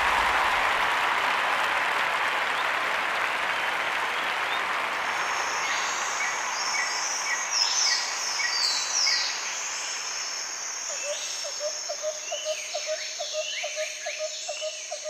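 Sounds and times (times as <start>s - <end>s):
applause: 0.0s - 8.5s.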